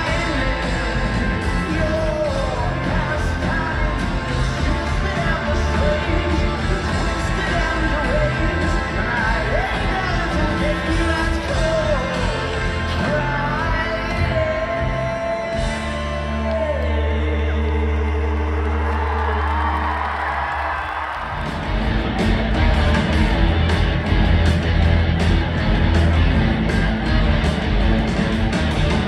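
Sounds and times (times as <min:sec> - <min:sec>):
live rock band with singer: 0:00.0 - 0:20.0, 0:21.3 - 0:29.0.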